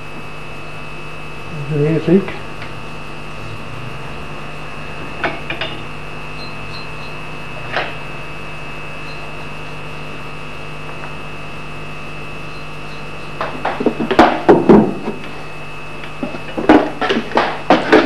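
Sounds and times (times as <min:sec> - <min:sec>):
steady hum: 0:00.0 - 0:18.0
tools knocking and clattering: 0:05.2 - 0:05.8.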